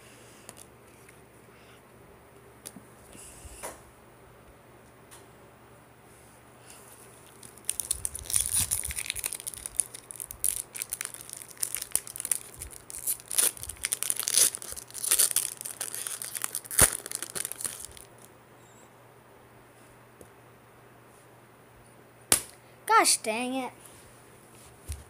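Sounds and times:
foil wrapper crinkling and tearing: 7.1 - 18.3
foil wrapper snapping: 7.2 - 18.3.

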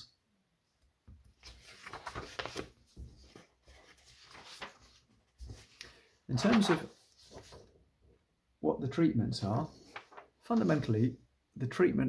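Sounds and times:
paper rustling and shuffling: 1.2 - 7.8, 9.5 - 11.1.

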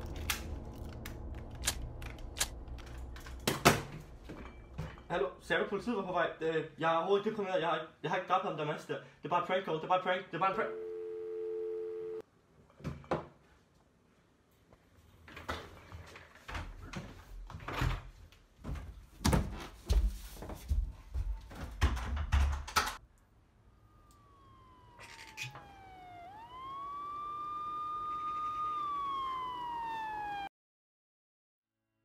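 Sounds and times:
siren wailing: 23.2 - 30.5.

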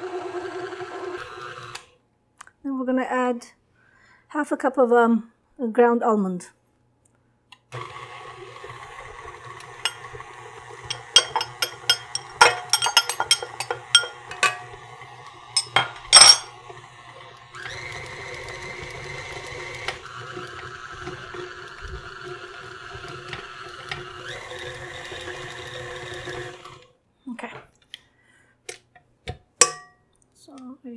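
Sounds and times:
stand mixer running: 0.0 - 1.8, 7.8 - 26.8
metal and glass clinks: 10.9 - 14.6, 15.6 - 16.5.

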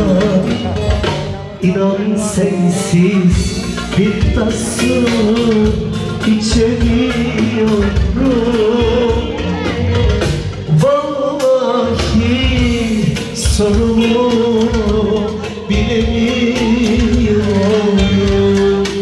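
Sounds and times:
person singing: 0.0 - 19.0
steady drum beat: 0.0 - 19.0.

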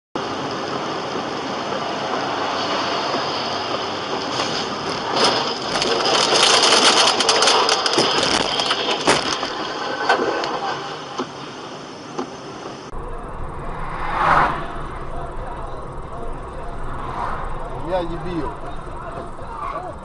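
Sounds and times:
car road noise: 0.2 - 20.0
knocks and rattles: 3.7 - 10.3.

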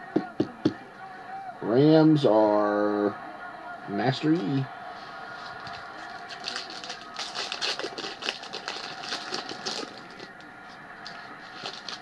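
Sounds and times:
foil wrapper tearing and crinkling: 6.1 - 10.4, 11.5 - 12.0.

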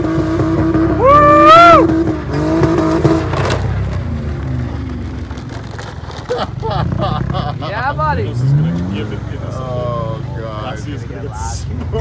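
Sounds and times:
car engines revving: 0.0 - 12.0
high whooping yell: 1.0 - 1.9.

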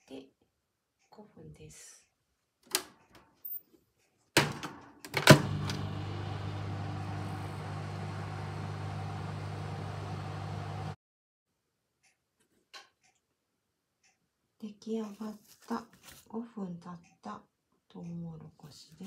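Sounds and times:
microwave humming: 5.1 - 11.0.

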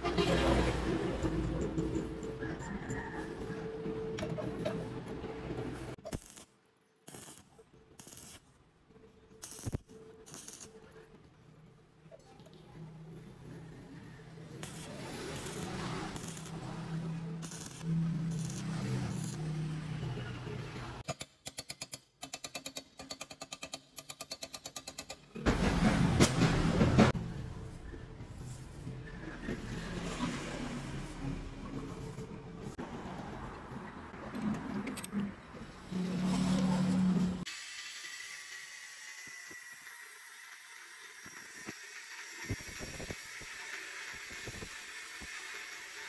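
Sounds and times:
arc welding crackle: 6.0 - 8.5, 9.4 - 10.9, 14.6 - 20.0, 37.8 - 46.0.

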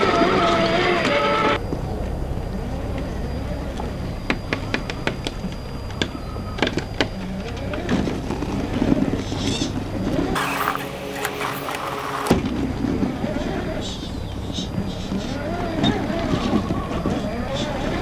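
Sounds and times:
electric motors whirring: 2.5 - 13.1.

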